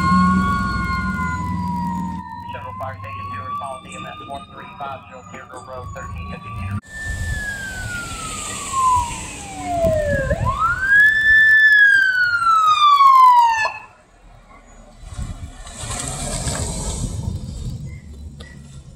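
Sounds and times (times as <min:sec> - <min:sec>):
fire engine siren wailing: 0:00.0 - 0:14.3
truck engine and road noise: 0:00.0 - 0:18.9.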